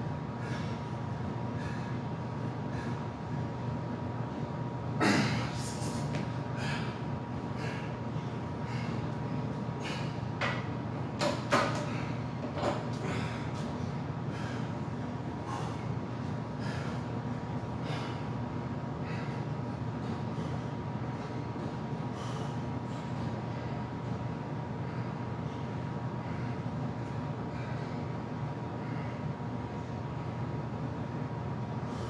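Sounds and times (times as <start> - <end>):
steady low hum: 0.0 - 32.0
heavy breathing: 0.3 - 3.5, 5.0 - 10.3, 13.0 - 21.4, 22.0 - 23.0
person grunting: 5.0 - 5.5.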